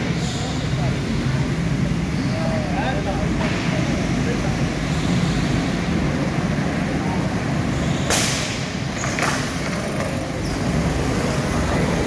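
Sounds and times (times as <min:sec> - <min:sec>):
go-kart engines droning: 0:00.0 - 0:12.0.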